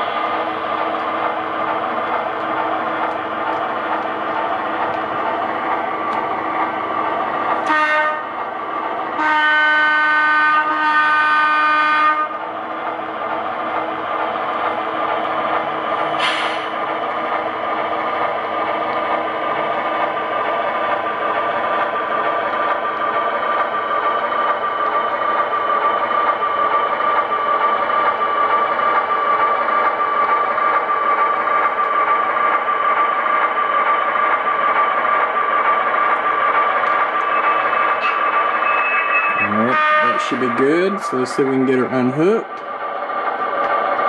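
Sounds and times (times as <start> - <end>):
locomotive horn blasts: 7.6 - 8.3, 9.2 - 12.4, 39.4 - 40.6.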